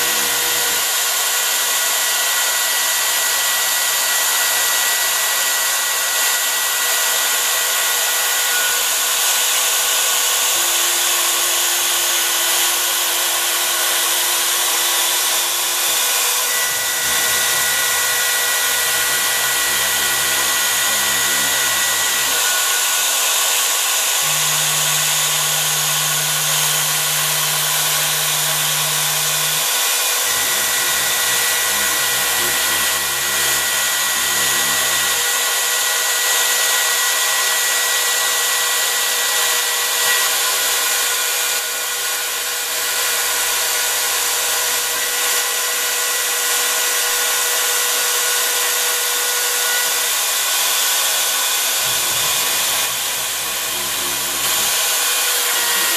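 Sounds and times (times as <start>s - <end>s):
router spindle high-speed whine: 0.0s - 55.9s
axis drives humming: 10.5s - 22.7s, 24.2s - 35.3s, 51.8s - 55.9s.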